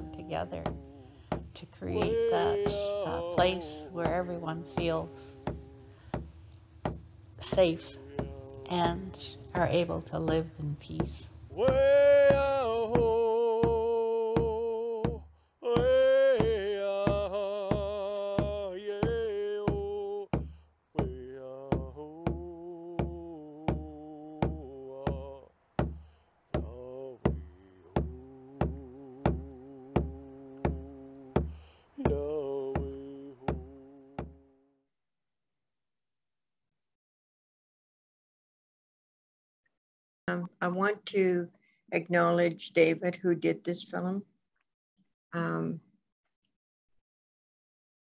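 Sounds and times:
man chanting: 0.0s - 5.9s, 7.5s - 10.8s, 11.5s - 20.3s, 21.0s - 25.5s, 26.6s - 34.5s
frame drum beating: 0.0s - 34.4s.

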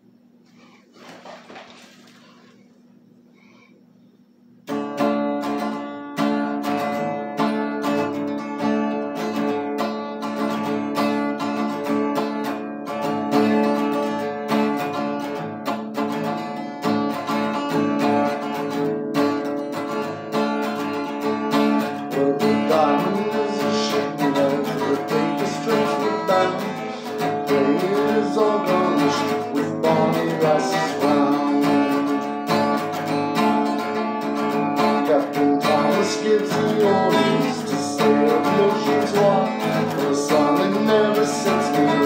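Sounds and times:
acoustic guitar strumming: 4.6s - 42.0s
man singing: 21.8s - 32.6s, 34.8s - 42.0s.

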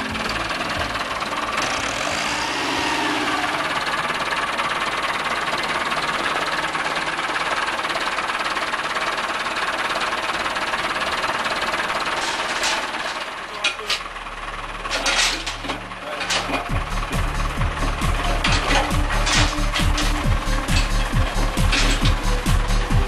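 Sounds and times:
diesel tractor engine running: 0.0s - 23.0s.

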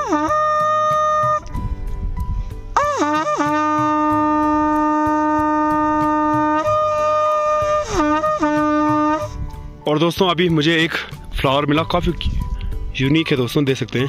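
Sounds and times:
conch shell blowing: 0.0s - 1.6s, 2.8s - 9.5s.

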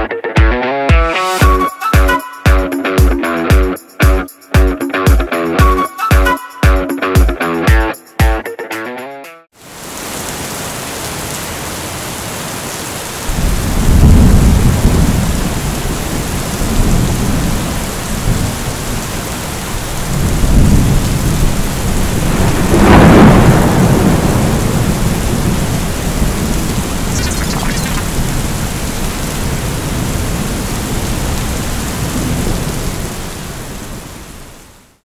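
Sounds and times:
rain falling: 9.6s - 35.0s
thunder rumbling: 13.3s - 15.9s.

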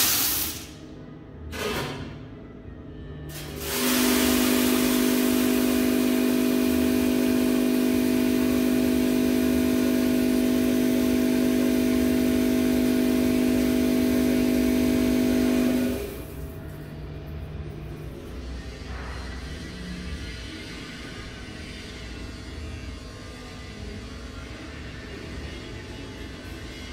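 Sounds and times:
hiss of pouring beans: 0.0s - 0.8s, 3.4s - 6.6s
machine motor hum: 3.3s - 16.5s.

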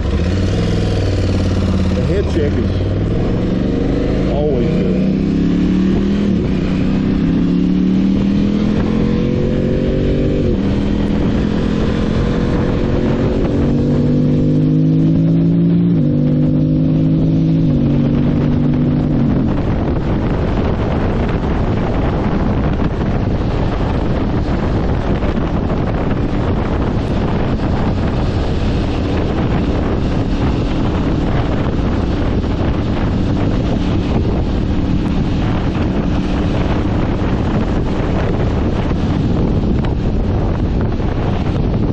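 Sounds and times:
motorcycle engine upshifting: 0.0s - 41.9s
wind noise on microphone: 0.0s - 41.9s.

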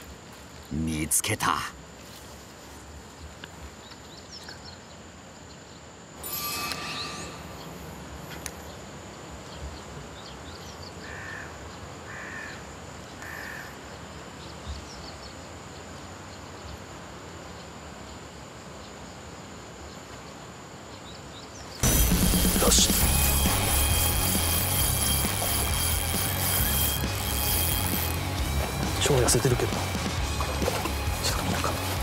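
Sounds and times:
crow cawing: 11.0s - 13.8s.

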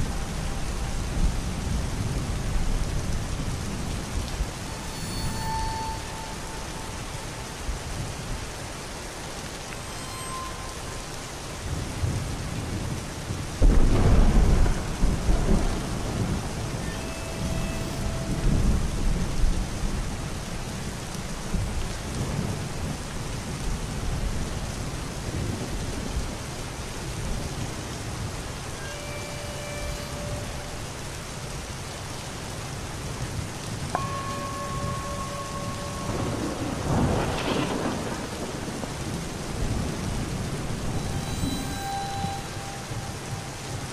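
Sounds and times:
steady rain: 0.0s - 43.9s
wet road noise: 0.0s - 43.9s
rolling thunder: 10.9s - 28.7s, 33.7s - 41.6s.

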